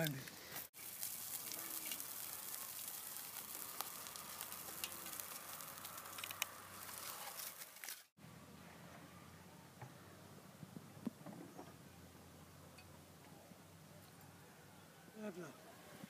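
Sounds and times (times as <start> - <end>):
wood fire crackling: 0.0 - 8.2
liquid sizzling in a pan: 0.3 - 8.1.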